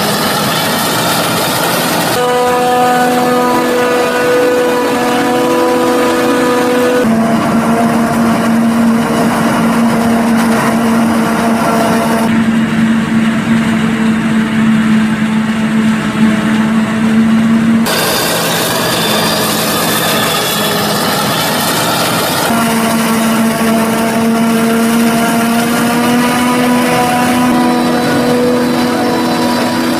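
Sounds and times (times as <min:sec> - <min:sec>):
forage harvester humming and whining: 0:00.0 - 0:29.9.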